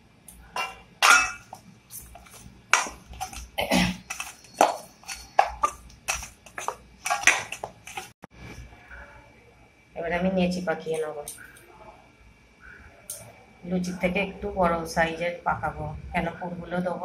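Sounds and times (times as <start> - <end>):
dough squishing: 0.3 - 8.2.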